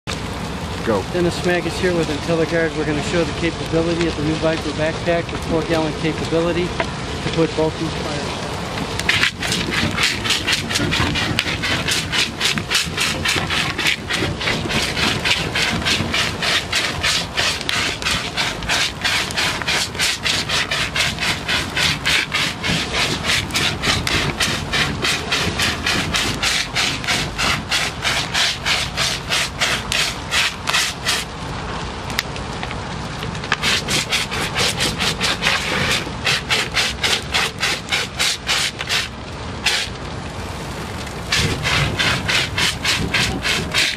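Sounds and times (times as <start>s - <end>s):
extinguisher pump rasping pulse: 9.1s - 31.3s, 33.5s - 40.0s, 41.3s - 43.9s.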